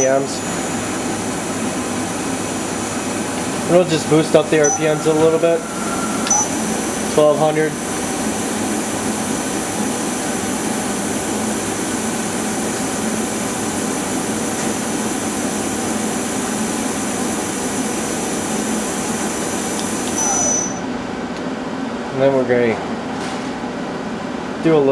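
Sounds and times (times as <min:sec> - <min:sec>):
thin high whine: 0:00.0 - 0:00.9, 0:03.0 - 0:09.1, 0:20.0 - 0:20.9.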